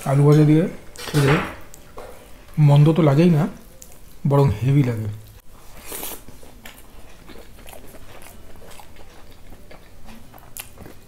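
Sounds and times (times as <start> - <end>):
wet chewing clicks: 3.7 - 11.0.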